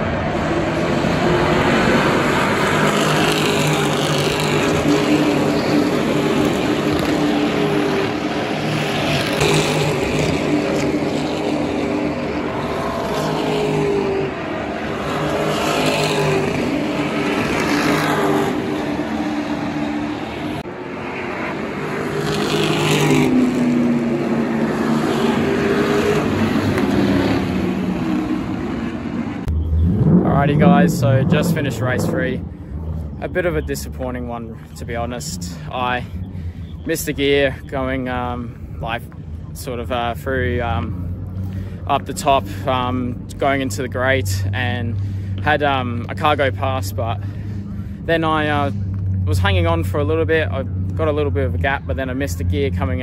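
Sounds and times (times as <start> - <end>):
race cars accelerating past: 0.0 - 34.0.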